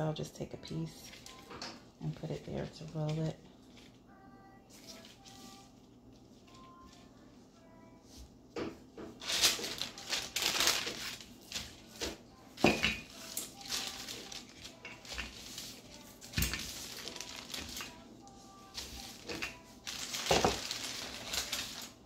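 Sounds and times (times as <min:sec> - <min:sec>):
paper crinkling and rustling: 0:00.9 - 0:07.2, 0:09.1 - 0:12.4, 0:13.0 - 0:22.0.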